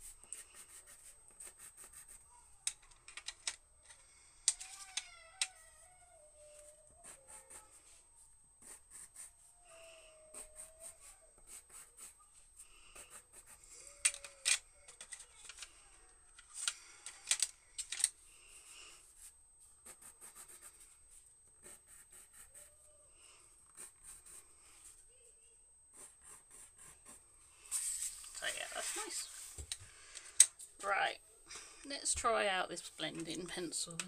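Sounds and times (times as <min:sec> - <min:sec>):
pencil scratching on paper: 0:00.0 - 0:02.2, 0:08.6 - 0:09.4, 0:10.3 - 0:12.2, 0:12.9 - 0:13.7, 0:19.1 - 0:20.9, 0:21.6 - 0:22.7, 0:23.7 - 0:25.0, 0:25.9 - 0:27.2
pencils clicking in metal tin: 0:02.6 - 0:05.5, 0:14.0 - 0:15.7, 0:16.4 - 0:18.1.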